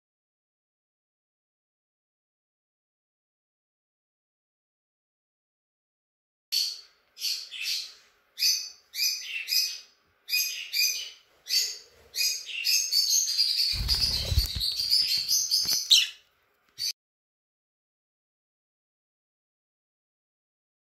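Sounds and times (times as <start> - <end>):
lovebirds chirping: 7.2 - 16.2.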